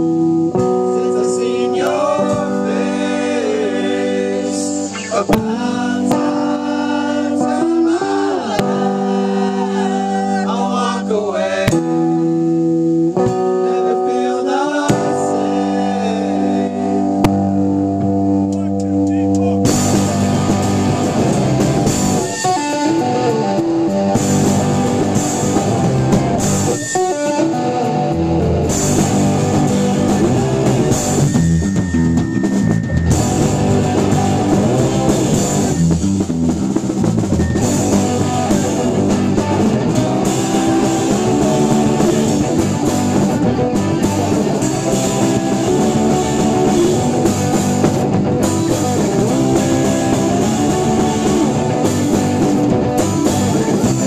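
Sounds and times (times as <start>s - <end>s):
rock band playing live: 0.0s - 54.0s.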